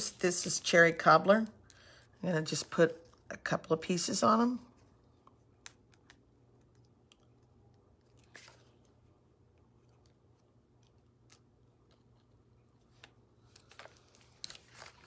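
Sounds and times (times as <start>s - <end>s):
paper rustling: 13.4s - 15.0s.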